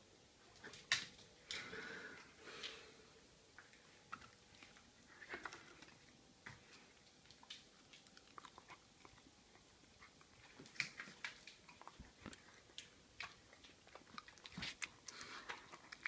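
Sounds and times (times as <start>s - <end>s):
dog chewing treats: 4.1s - 16.0s.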